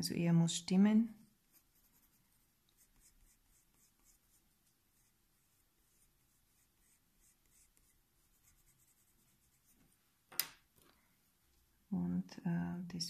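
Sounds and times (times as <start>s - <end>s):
pencil scratching on paper: 1.4s - 9.9s.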